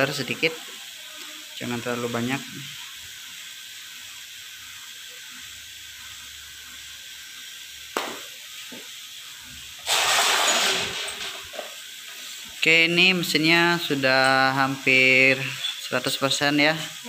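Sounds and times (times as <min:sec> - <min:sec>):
short loud hiss: 0:09.8 - 0:11.5.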